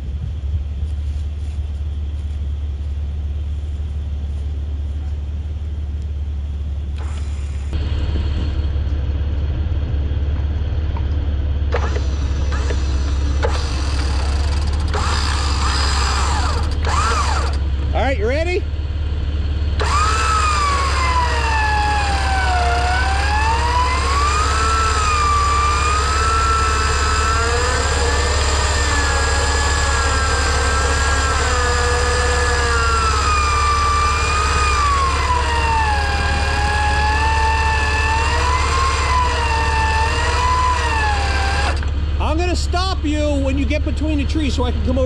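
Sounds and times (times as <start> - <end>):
steady low hum: 0.0 - 45.0
electric winch motor whining: 7.0 - 8.5, 11.7 - 17.8, 19.7 - 42.3.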